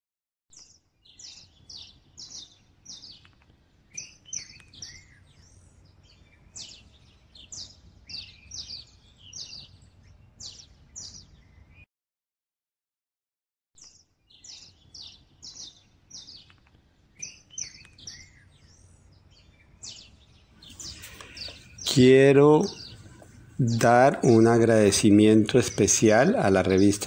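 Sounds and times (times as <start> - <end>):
birds chirping: 0.6 - 11.8, 13.8 - 27.0
low background noise: 14.7 - 27.0.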